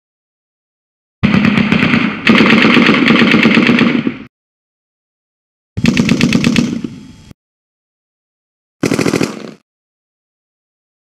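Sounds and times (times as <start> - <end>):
machine gun fire: 1.2 - 4.3, 5.8 - 6.9, 8.8 - 9.6.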